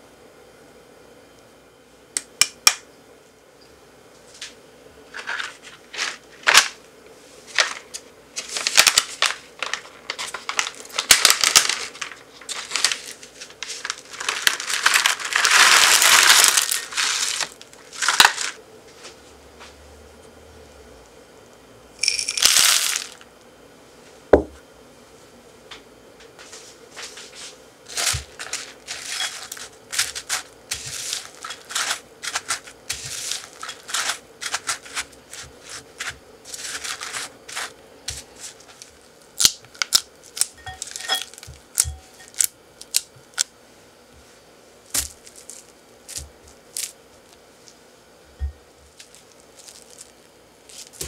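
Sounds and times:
spatula crunching and scraping mix: 7.4s - 18.6s, 27.8s - 43.5s, 44.9s - 47.4s, 48.4s - 51.0s
loud rustling: 8.4s - 18.6s, 27.9s - 39.0s.

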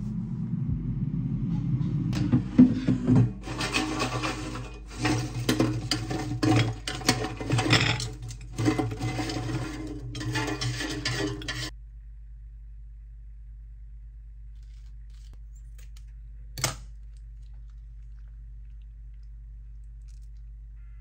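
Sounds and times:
steady low hum: 0.0s - 21.0s
chicken pieces scraping metal grate: 3.4s - 11.7s.

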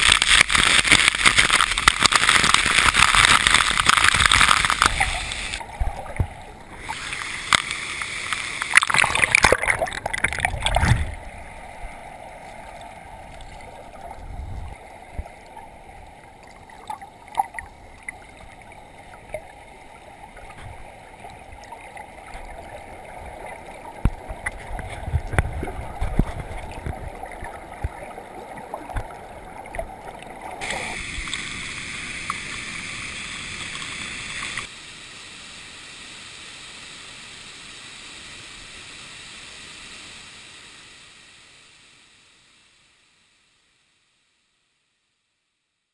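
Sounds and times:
splashing water: 0.0s - 11.3s
muffled underwater rumble: 20.3s - 31.2s
underwater clicks and knocks: 24.0s - 28.0s, 28.8s - 29.9s
waterfall rushing: 29.2s - 34.7s.

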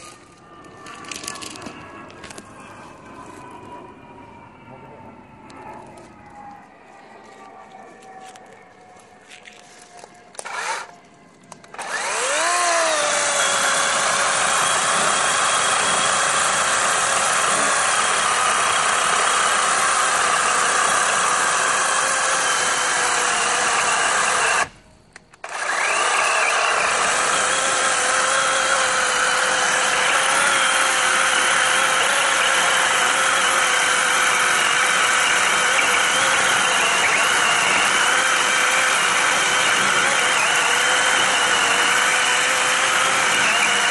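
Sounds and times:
battery chainsaw cutting log: 10.4s - 10.9s, 11.7s - 24.8s, 25.4s - 43.9s.

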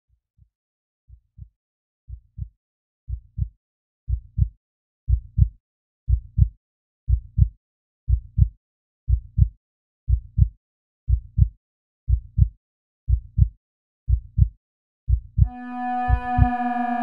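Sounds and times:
heartbeat thumps: 5.1s - 5.5s, 6.1s - 6.5s, 7.1s - 7.5s, 8.1s - 8.5s, 9.1s - 9.5s, 10.1s - 10.5s, 11.1s - 11.5s, 12.1s - 12.5s, 13.1s - 13.5s, 14.1s - 14.5s, 15.1s - 16.6s.

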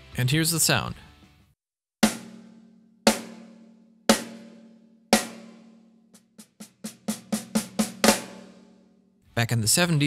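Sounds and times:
snare drum hits ringing: 3.1s - 5.7s.

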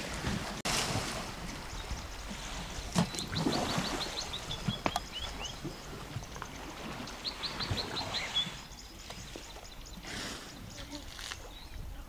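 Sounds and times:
elephants splashing in water: 0.0s - 11.3s
bird chirping: 3.0s - 12.0s.

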